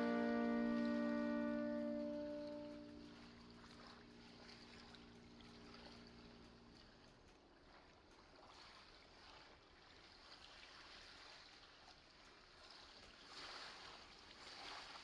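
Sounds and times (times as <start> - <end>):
sea waves washing on shore: 0.0 - 3.1.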